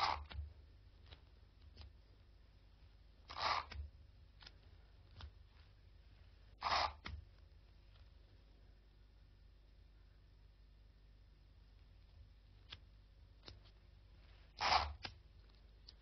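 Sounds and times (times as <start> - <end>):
tape ripping off a roll: 3.2 - 4.5, 6.6 - 7.2, 14.6 - 15.2.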